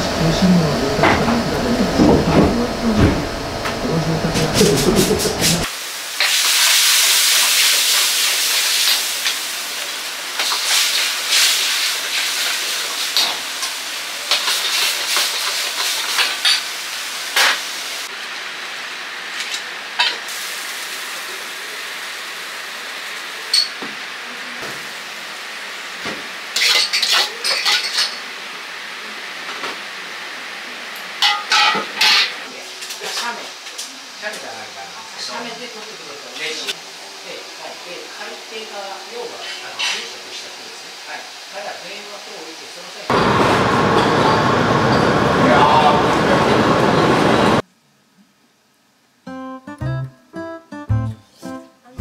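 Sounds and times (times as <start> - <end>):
food sizzling in a wok: 5.6 - 45.4.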